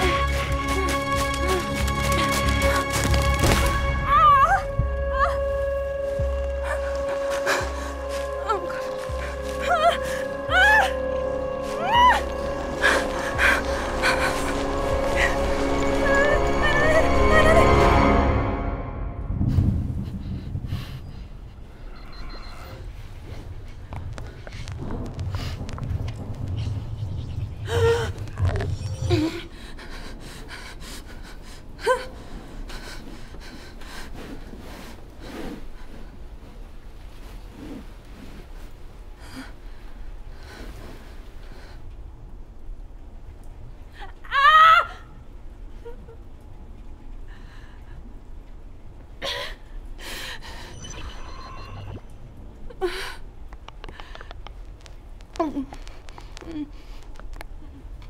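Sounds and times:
low rumble: 0.0s - 44.0s
woman gasping and sobbing: 4.1s - 17.8s.

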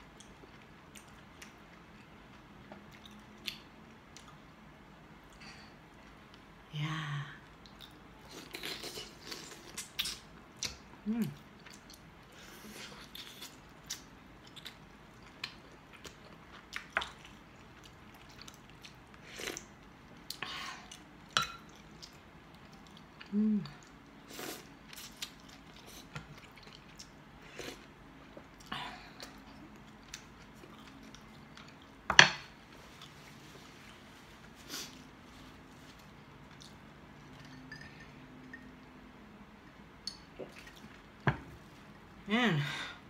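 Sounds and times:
person chewing food: 0.0s - 4.5s, 7.6s - 37.5s.

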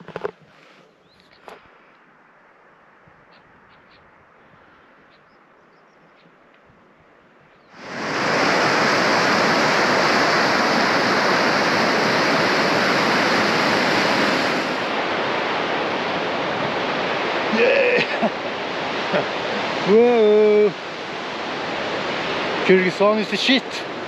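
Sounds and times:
river rushing over stones: 7.8s - 24.0s.

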